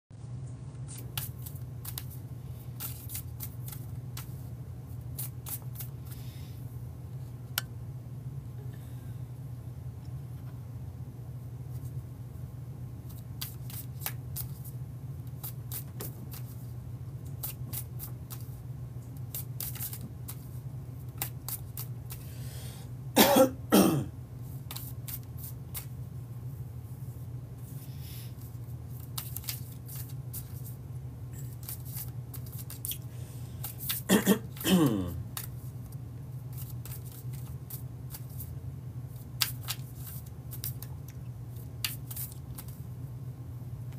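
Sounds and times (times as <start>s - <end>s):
steady low hum: 0.1s - 43.9s
cards being shuffled: 0.9s - 2.2s, 2.8s - 6.2s, 13.1s - 16.7s, 17.3s - 18.6s, 19.2s - 22.3s, 24.5s - 26.0s, 28.4s - 30.8s, 31.4s - 34.7s, 35.3s - 38.5s, 39.1s - 42.8s
man coughing: 23.2s - 24.2s, 34.1s - 35.2s.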